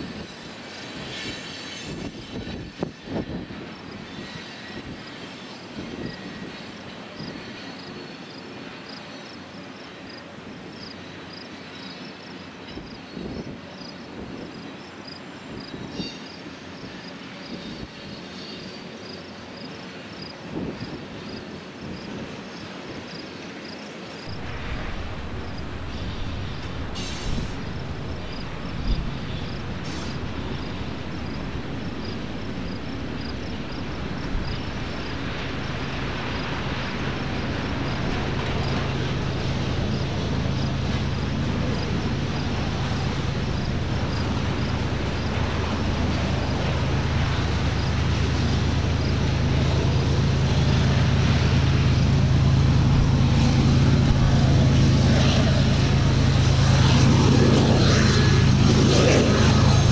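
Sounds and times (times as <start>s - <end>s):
diesel locomotive engines running: 0.0s - 59.9s.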